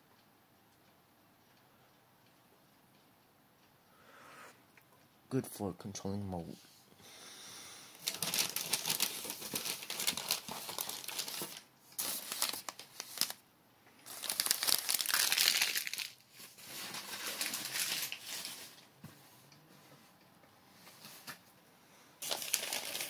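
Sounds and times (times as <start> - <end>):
packing paper crinkling: 7.9 - 13.4, 14.0 - 18.9, 22.2 - 23.0.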